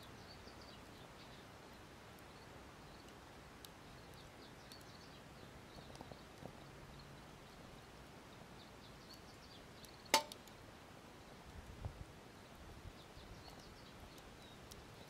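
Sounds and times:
wood fire crackling: 0.0s - 15.0s
sharp pop of fire: 10.1s - 10.5s.

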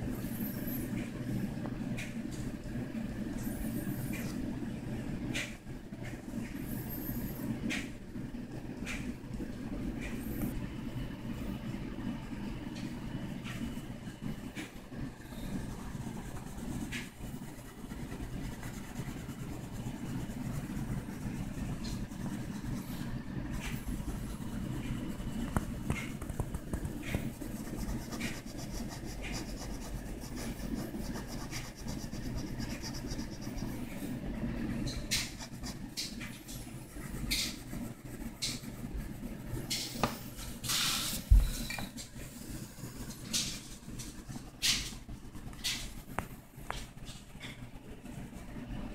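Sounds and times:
low background hum: 0.0s - 48.9s
pencil scratching on paper: 15.3s - 23.0s, 23.6s - 34.0s, 34.9s - 39.8s.

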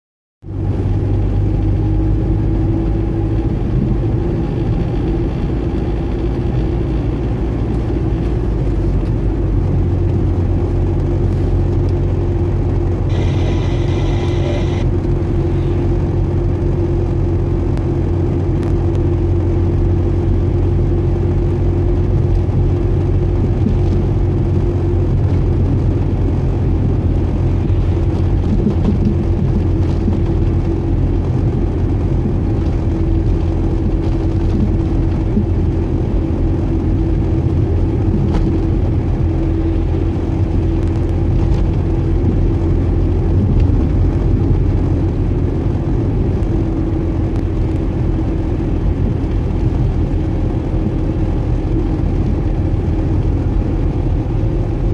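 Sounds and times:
car engine and tyre rumble: 0.4s - 54.9s
high-pitched tone: 13.0s - 16.0s.

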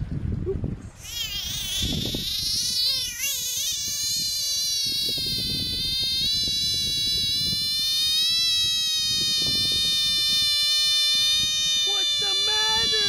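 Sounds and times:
frog screaming high-pitched wail: 1.0s - 13.0s.

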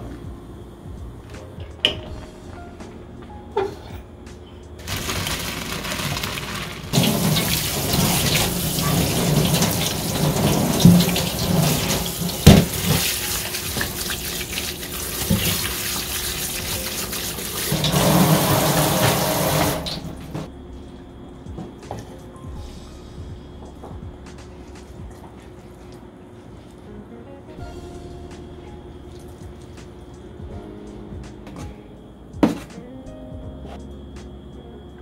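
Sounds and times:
tap water running into colander: 4.8s - 20.5s.

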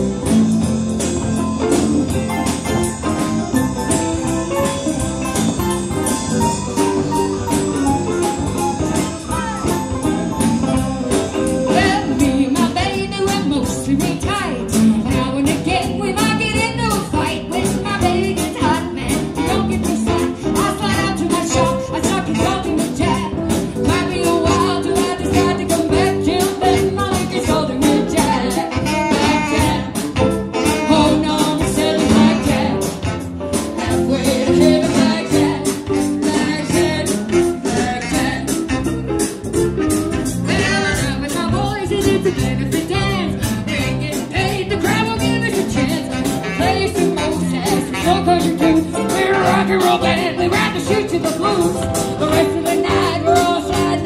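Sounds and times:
drum beat: 0.0s - 13.4s
live band playing: 0.0s - 54.0s
saxophone: 0.0s - 54.0s
woman singing lead: 7.2s - 10.0s, 11.4s - 39.0s, 40.5s - 54.0s.

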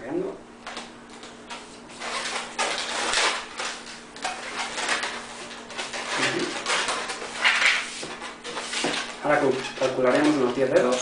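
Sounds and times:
balloons squeaking and rubbing: 1.5s - 11.0s.

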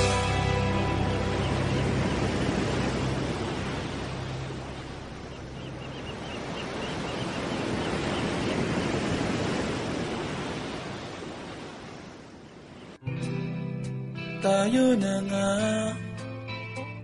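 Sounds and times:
ocean surf washing: 0.0s - 13.0s.

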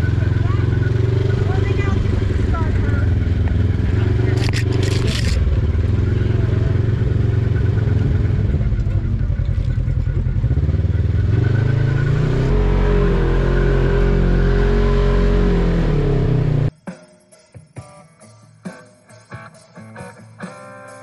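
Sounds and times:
utility vehicle engine revving: 0.0s - 16.7s.

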